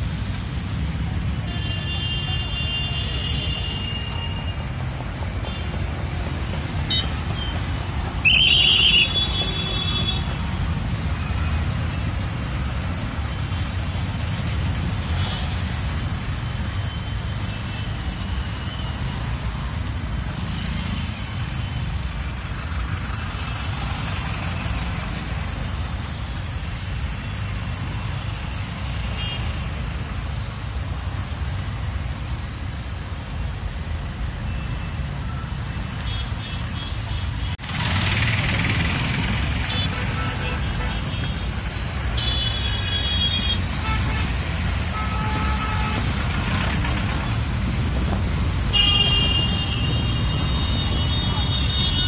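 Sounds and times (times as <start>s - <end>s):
low rumble of road traffic: 0.0s - 52.0s
vehicle horn honking: 48.7s - 52.0s.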